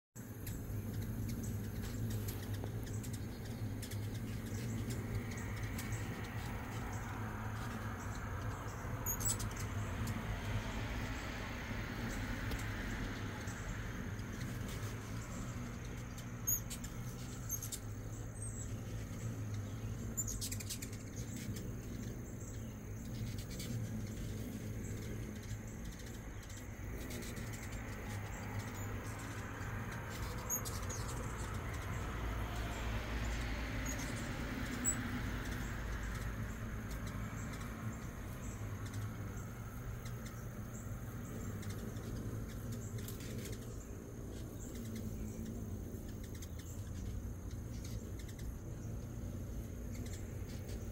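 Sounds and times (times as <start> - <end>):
hummingbird wings whirring: 0.2 - 50.9
low background hum: 0.2 - 50.9
hummingbird chip notes: 0.3 - 50.9.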